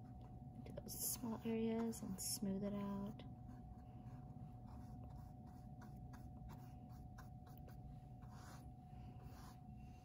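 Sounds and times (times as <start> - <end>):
faint hum: 0.0 - 10.0
paintbrush strokes on canvas: 3.4 - 10.0.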